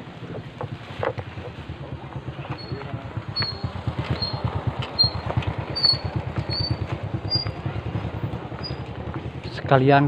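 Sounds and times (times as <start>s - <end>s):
motorcycle engine putter: 2.2s - 7.6s.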